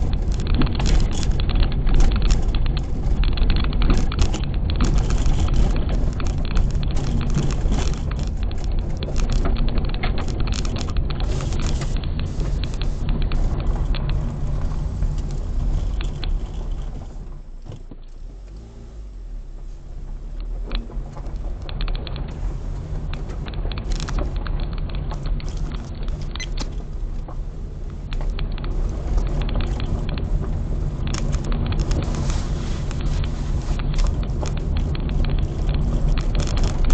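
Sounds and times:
car engine and tyre rumble: 0.0s - 36.9s
gravel clicking and rattling: 0.0s - 36.9s.

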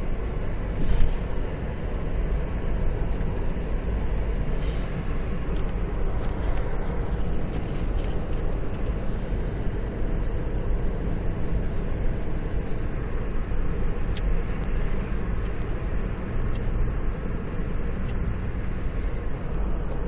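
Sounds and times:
car cabin rumble: 0.0s - 20.0s
paper and plastic cards rustling: 5.6s - 8.8s.

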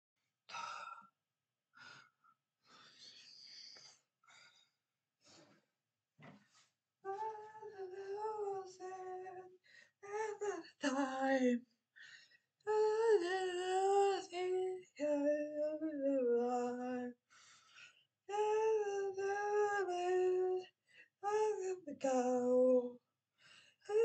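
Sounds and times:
person singing unaccompanied: 7.1s - 11.6s, 12.7s - 17.2s, 18.3s - 23.0s.

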